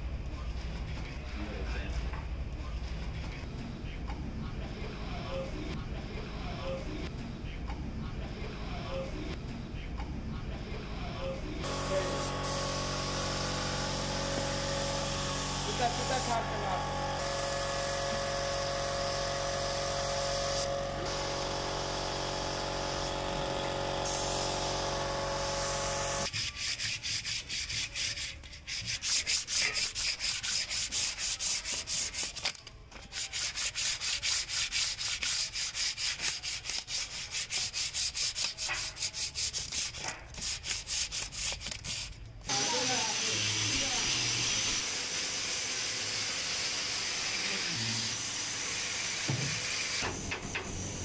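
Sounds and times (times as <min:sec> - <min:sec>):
sandpaper rubbing on fibreboard: 0:26.2 - 0:32.4, 0:33.1 - 0:43.1.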